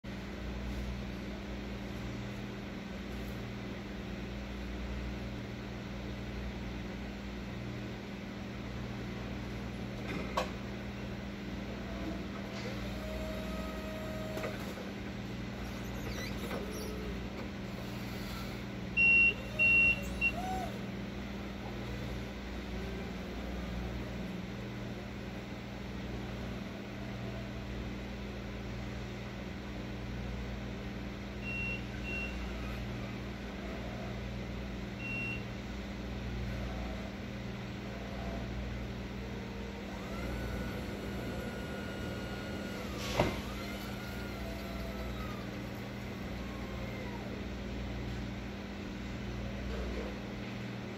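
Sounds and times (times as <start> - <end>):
truck motor humming: 11.7 - 24.7, 39.0 - 47.5
high-pitched warning beeps: 19.0 - 20.4.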